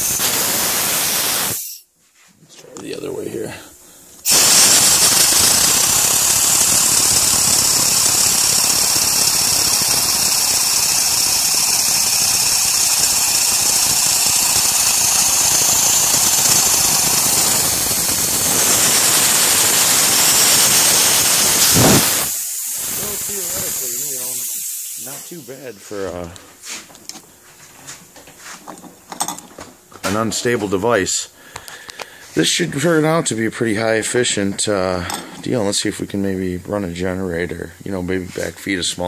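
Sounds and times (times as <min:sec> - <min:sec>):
compressed air hissing: 0:00.0 - 0:01.9, 0:04.0 - 0:26.9
spinning disc rotor whirring: 0:04.2 - 0:24.4.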